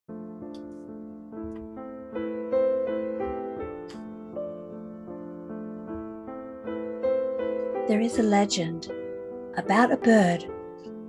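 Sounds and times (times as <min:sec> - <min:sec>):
slow gentle piano music: 0:00.1 - 0:11.0.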